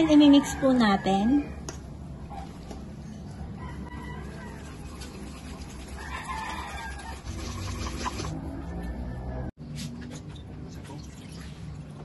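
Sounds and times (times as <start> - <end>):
whisk scraping metal bowl: 6.4 - 8.4.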